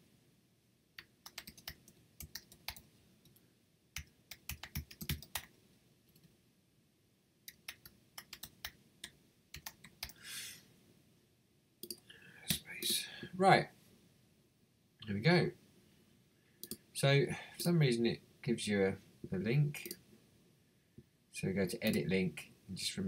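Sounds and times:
keyboard typing: 1.0s - 3.4s, 4.0s - 5.5s, 7.5s - 10.2s, 11.8s - 13.0s.

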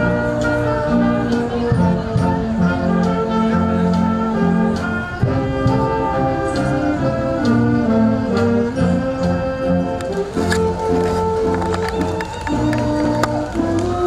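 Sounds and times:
brass band playing chords: 0.0s - 14.0s.

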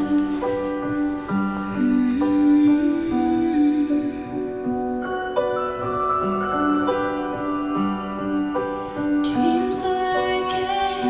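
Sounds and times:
slow piano song over speakers: 0.0s - 11.0s.

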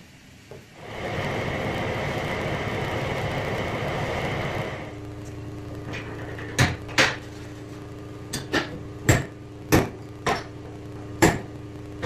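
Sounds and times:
machine hum: 0.0s - 12.0s.

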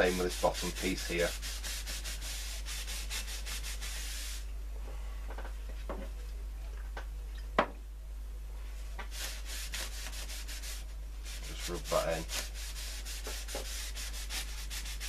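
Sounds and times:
paper towel rubbing wood: 0.0s - 4.4s, 9.1s - 15.0s.

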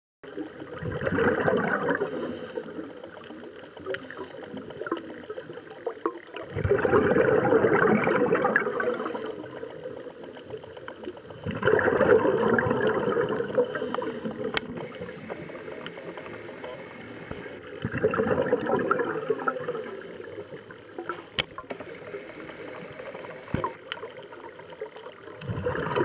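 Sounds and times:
scuba regulator bubbles underwater: 0.2s - 26.0s.

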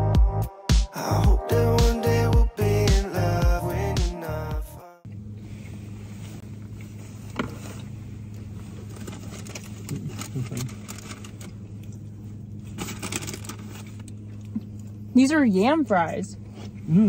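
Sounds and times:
music: 0.0s - 5.0s
car idling hum: 1.0s - 17.0s.

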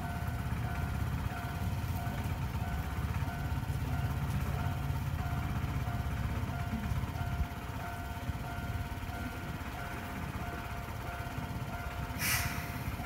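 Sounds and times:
short burst of hiss: 12.2s - 12.9s.

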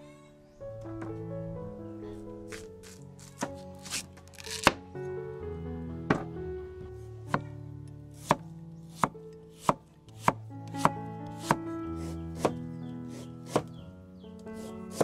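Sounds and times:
cleaver slicing bamboo shoot: 2.5s - 4.8s, 8.2s - 13.8s, 14.6s - 15.0s
blade knocking on wooden board: 6.1s - 6.3s, 9.0s - 11.6s, 13.5s - 13.8s.

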